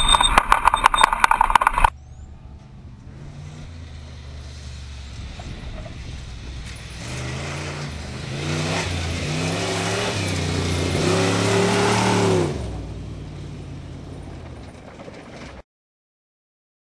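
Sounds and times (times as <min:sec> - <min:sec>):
rally car engine revving: 0:02.6 - 0:15.5.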